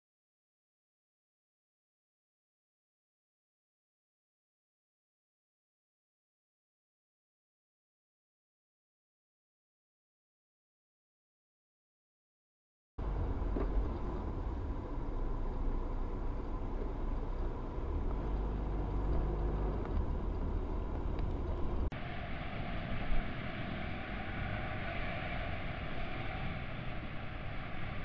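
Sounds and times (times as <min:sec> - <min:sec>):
car cabin road rumble: 0:13.0 - 0:22.0
city street traffic: 0:13.0 - 0:28.0.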